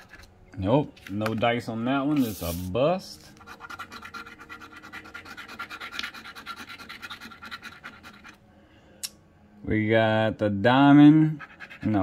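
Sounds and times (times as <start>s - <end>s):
lottery ticket being scratched: 0.0s - 0.3s, 1.0s - 8.4s, 11.3s - 12.0s.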